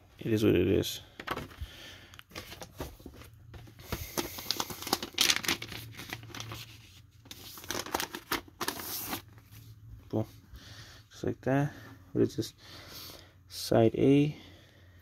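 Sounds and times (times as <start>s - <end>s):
paper sleeve rustling and crinkling: 2.3s - 9.8s.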